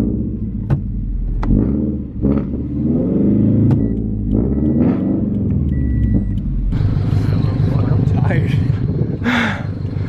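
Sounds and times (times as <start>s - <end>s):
car engine running: 0.0s - 10.0s
sharp clicks: 3.7s - 6.5s.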